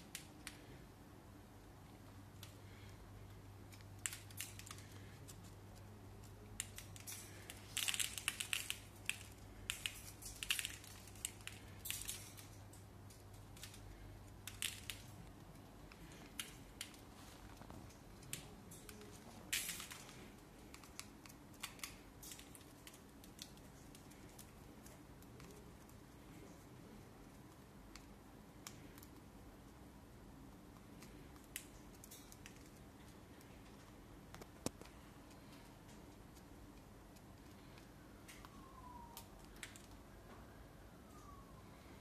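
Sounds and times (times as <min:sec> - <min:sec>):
faint hum: 0:00.0 - 0:42.0
bird cracking seeds: 0:03.6 - 0:25.7.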